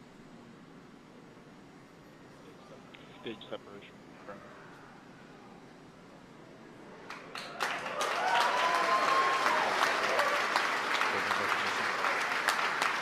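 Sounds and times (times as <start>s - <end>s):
crowd applause and cheering: 7.1s - 13.0s
person whooping: 8.0s - 10.5s.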